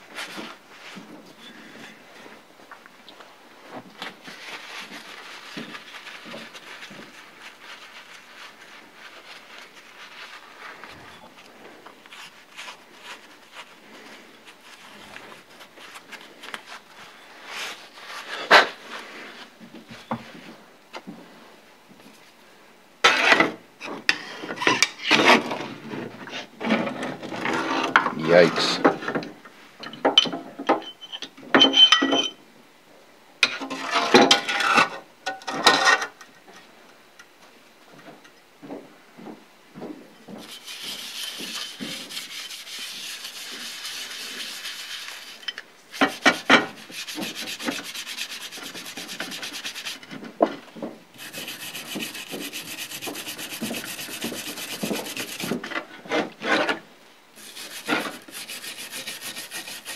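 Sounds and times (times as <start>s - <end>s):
scraper scraping metal: 40.4s - 45.4s, 46.0s - 50.1s, 51.2s - 55.6s, 57.4s - 59.9s
brush scrubbing: 40.4s - 50.1s, 51.2s - 55.6s, 57.4s - 59.9s.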